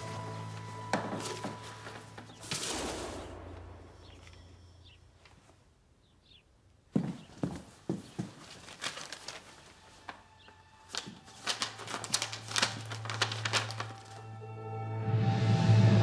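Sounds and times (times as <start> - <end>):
paper rustling and crinkling: 0.0 - 3.2, 7.4 - 14.3
low music drone: 0.0 - 5.2, 11.6 - 16.0.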